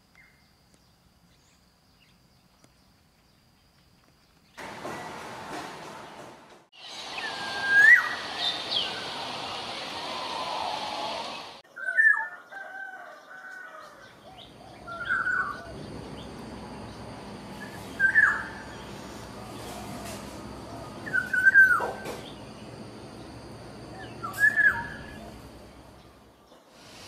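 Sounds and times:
bird whistled calls: 6.8s - 12.2s, 17.6s - 20.0s, 20.8s - 22.4s, 24.0s - 25.5s.

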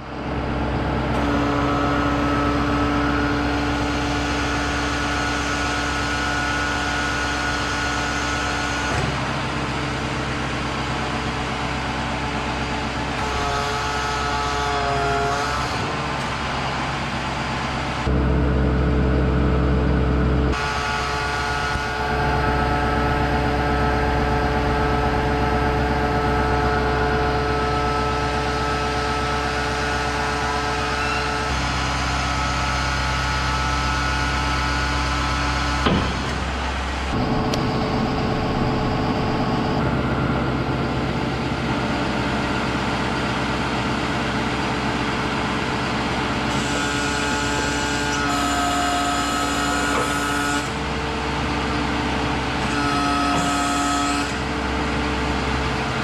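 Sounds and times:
hydraulic crane humming: 0.0s - 56.0s.

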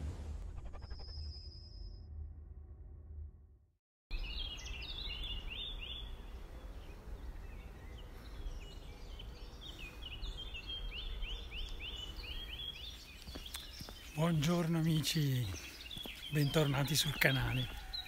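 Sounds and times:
songbirds chirping: 4.1s - 18.0s.

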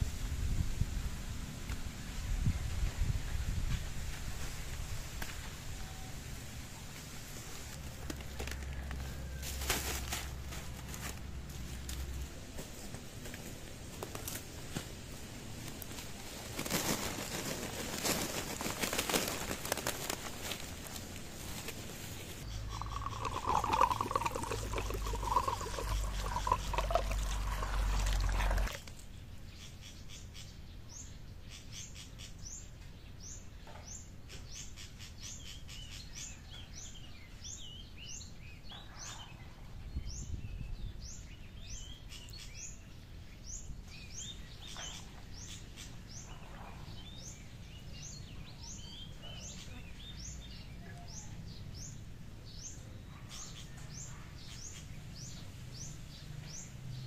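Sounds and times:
bird chirping in falling chirps: 22.4s - 28.8s
water splashing into basin: 22.7s - 28.9s.

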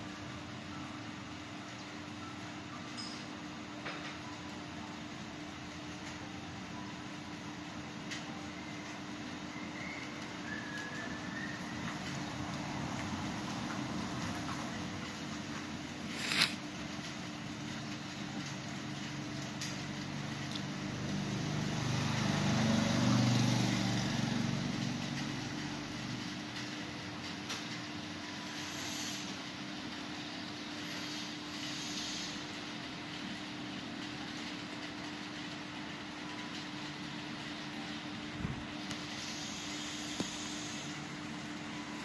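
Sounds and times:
rain falling on a street: 5.6s - 28.6s, 32.4s - 39.1s
vehicle driving on wet road: 11.3s - 15.6s, 20.3s - 27.7s.

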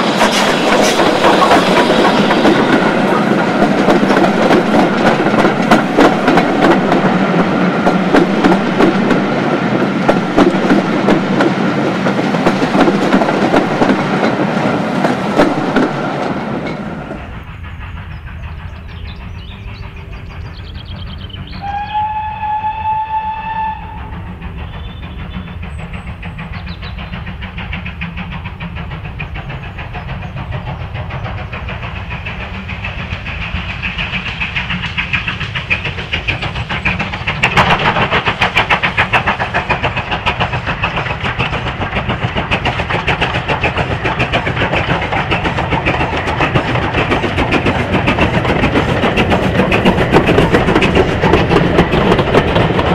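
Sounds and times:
train wheels clattering over rail joints: 0.0s - 21.7s, 23.2s - 52.9s
locomotive exhaust beats: 0.0s - 52.9s
steam locomotive whistle: 21.5s - 25.6s.

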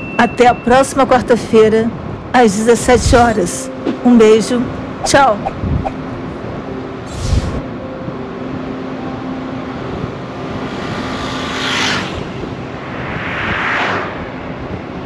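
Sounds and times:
road traffic passing: 3.0s - 15.0s.

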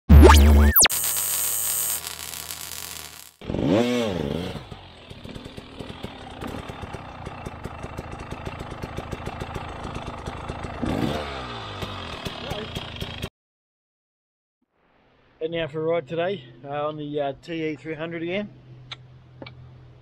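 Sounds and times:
dirt bike engine revving: 3.4s - 7.8s, 10.6s - 13.3s.

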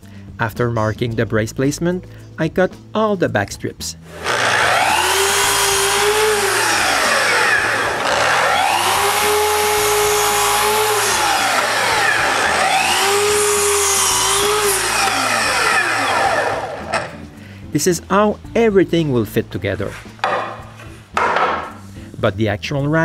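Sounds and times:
miter saw cutting wood: 4.1s - 17.2s.

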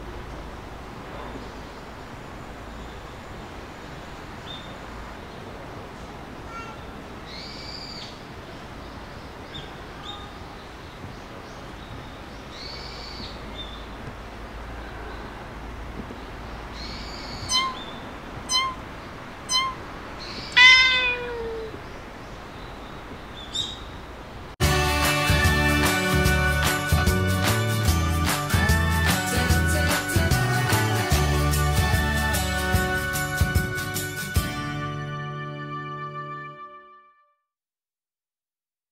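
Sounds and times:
faint high calls: 6.4s - 8.2s, 16.8s - 22.2s
cat meowing: 17.5s - 17.9s, 18.5s - 18.8s, 19.5s - 19.8s, 20.5s - 21.8s.

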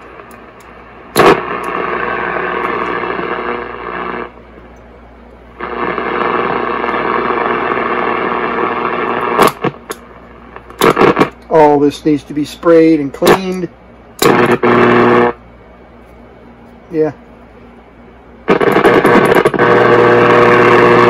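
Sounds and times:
radio static with hum: 0.0s - 4.4s, 5.5s - 15.4s, 18.4s - 21.0s
sharp radio crackles: 0.0s - 4.4s, 5.6s - 15.4s, 18.4s - 21.0s.

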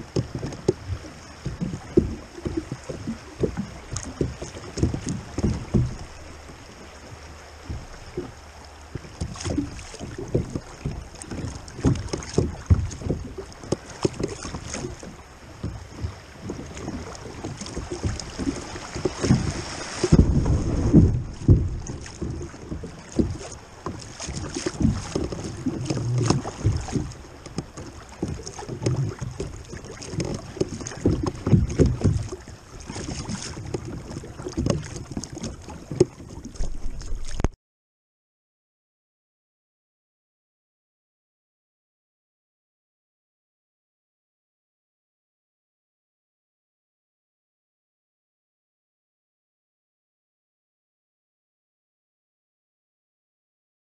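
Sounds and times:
river water splashing against kayak: 0.0s - 37.6s
wind gusting on microphone: 15.9s - 23.8s.

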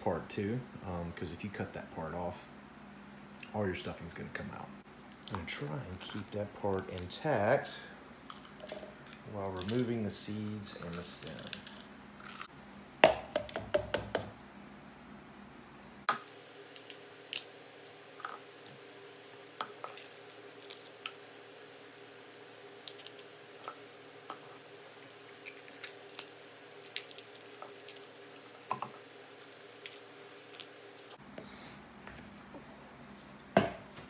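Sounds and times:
pepper seeds and stems tearing: 5.2s - 7.2s, 8.1s - 12.5s, 18.7s - 24.3s, 25.2s - 31.2s.

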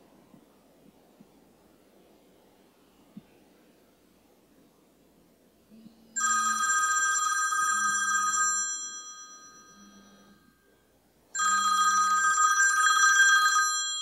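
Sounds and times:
mobile phone ringing: 6.2s - 10.8s, 11.4s - 14.0s.

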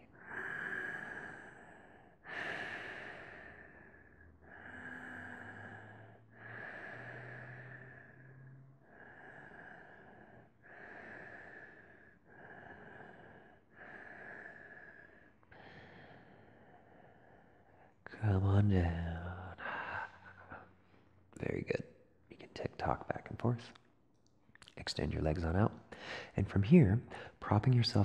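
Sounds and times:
man breathing slowly: 0.0s - 21.4s, 25.9s - 26.4s.

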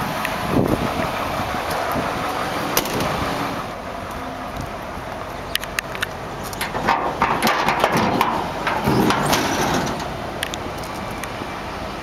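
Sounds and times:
tailgate clattering open: 6.6s - 10.2s.

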